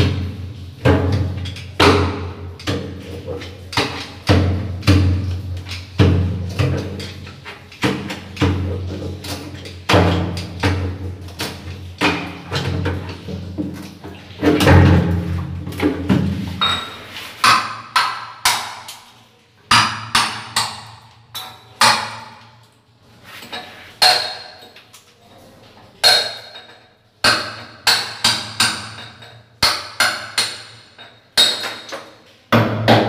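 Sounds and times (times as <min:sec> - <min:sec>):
hammer striking chisel on tile: 0:16.6 - 0:19.0, 0:19.7 - 0:22.6, 0:23.5 - 0:24.8, 0:26.0 - 0:33.0.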